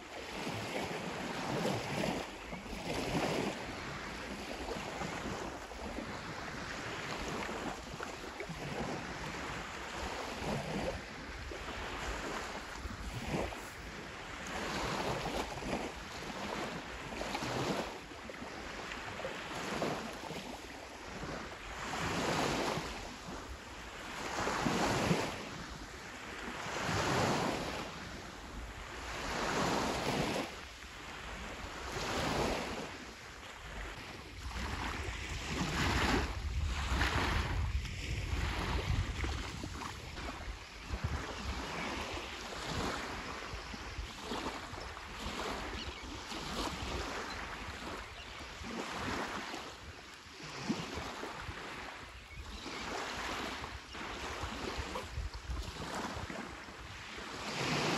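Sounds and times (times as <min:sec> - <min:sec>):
small waves washing onto beach: 0:00.0 - 0:57.9
wind rumbling on microphone: 0:00.3 - 0:20.0, 0:21.0 - 0:57.9.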